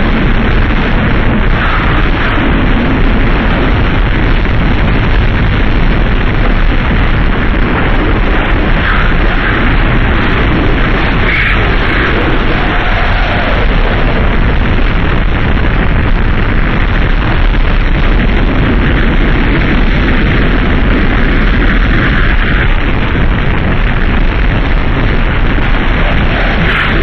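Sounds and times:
harsh distorted noise rumble: 0.0s - 27.0s.

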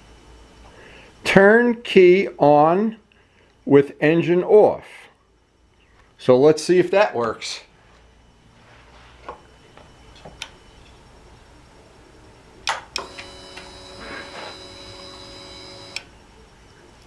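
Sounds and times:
fuel pump hum and whine: 12.7s - 16.9s.

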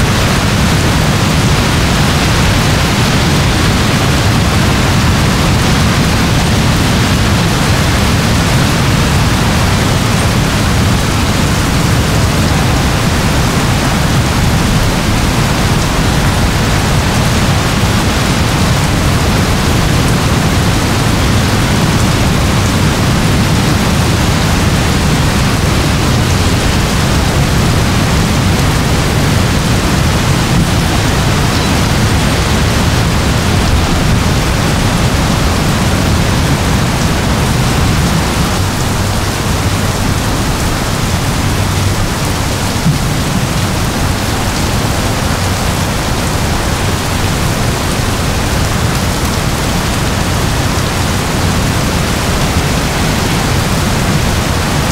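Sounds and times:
heavy rain falling: 0.0s - 54.9s.

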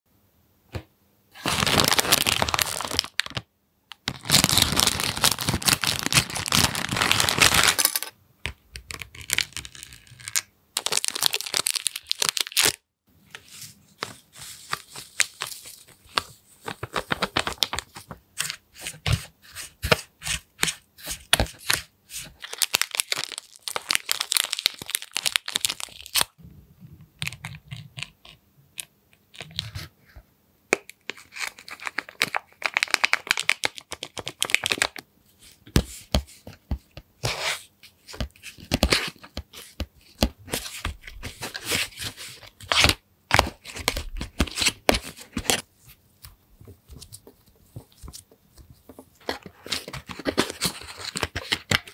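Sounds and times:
plastic packets crackling: 1.4s - 8.0s, 9.2s - 12.8s, 22.4s - 26.4s, 31.5s - 35.0s
plastic wrapper crinkling and tearing: 1.4s - 8.0s, 8.8s - 12.8s, 14.7s - 18.2s, 21.5s - 26.4s, 31.1s - 35.0s.

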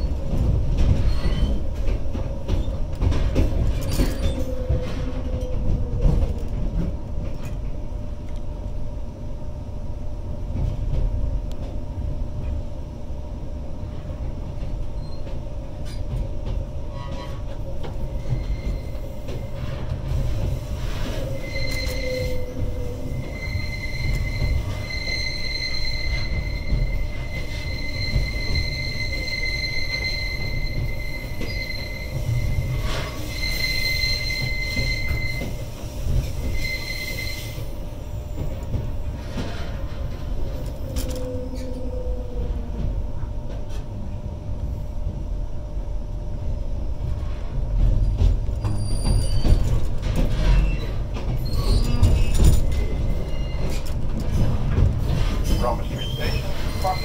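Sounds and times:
train low rumble: 0.0s - 57.0s
high steady squeal: 20.7s - 35.6s.

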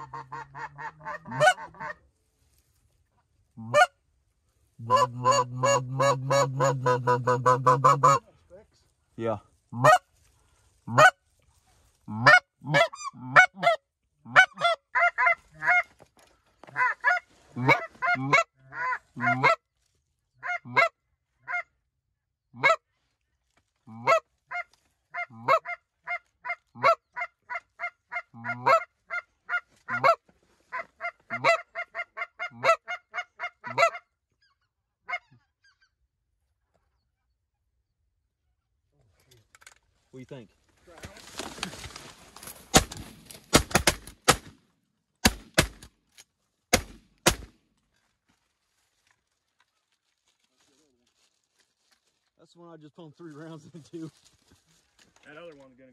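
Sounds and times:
geese yelping honks: 0.0s - 2.0s, 3.6s - 4.0s, 4.8s - 8.2s, 9.8s - 10.1s, 12.1s - 15.9s, 24.0s - 34.1s.

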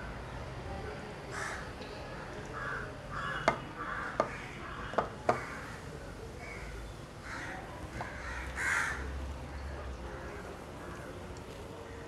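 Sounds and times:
crows cawing: 1.3s - 1.7s, 2.6s - 5.8s, 6.4s - 9.0s.

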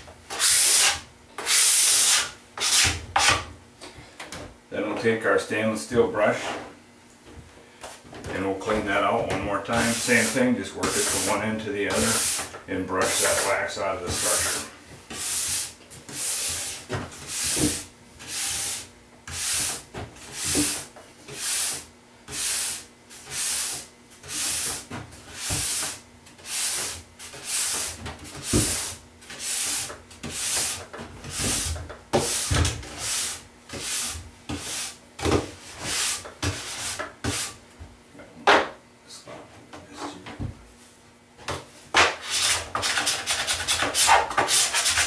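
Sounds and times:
steel brush scrubbing: 9.7s - 19.7s, 42.2s - 45.0s.

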